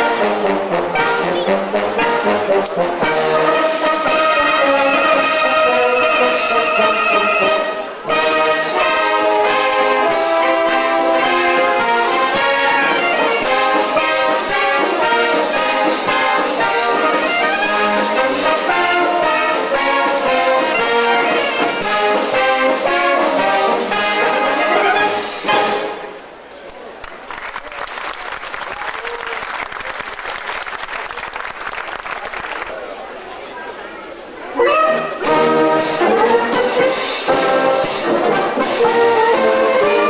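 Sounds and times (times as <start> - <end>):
wind band playing: 0.0 - 26.4, 34.5 - 40.0.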